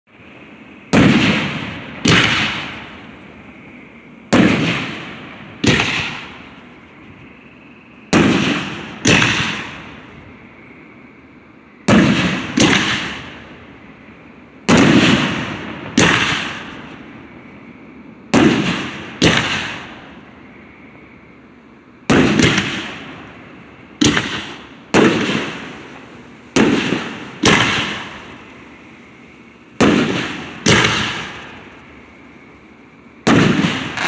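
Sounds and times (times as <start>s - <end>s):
fireworks bangs with echo: 0.9s - 3.5s, 4.3s - 6.8s, 8.1s - 10.2s, 11.8s - 13.6s, 14.6s - 17.0s, 18.3s - 20.2s, 22.1s - 28.8s, 29.6s - 31.9s, 33.2s - 34.0s.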